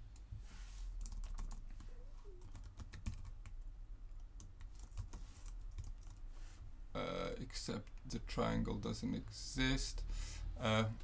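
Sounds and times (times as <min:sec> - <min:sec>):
typing on computer keyboard: 0:01.0 - 0:01.6, 0:02.4 - 0:03.6, 0:04.3 - 0:06.2.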